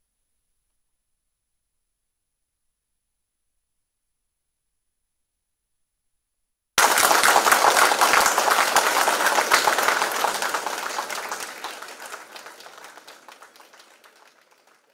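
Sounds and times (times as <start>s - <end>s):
audience applauding: 6.8s - 14.9s.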